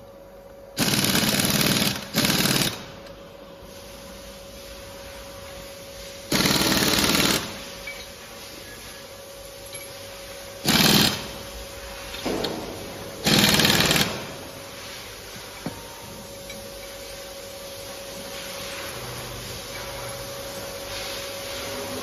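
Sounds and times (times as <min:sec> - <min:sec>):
impact driver rattling: 0:13.2 - 0:14.3.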